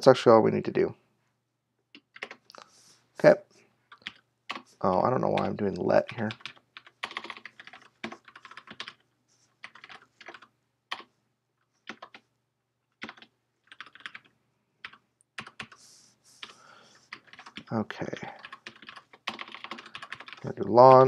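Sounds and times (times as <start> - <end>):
typing on keyboard: 1.9 - 2.5, 3.9 - 11.1, 11.8 - 12.3, 12.9 - 15.8, 16.4 - 21.0.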